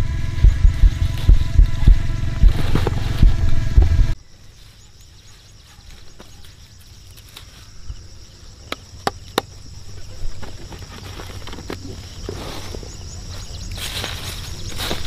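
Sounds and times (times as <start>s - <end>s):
low rumble: 0.0s - 4.2s.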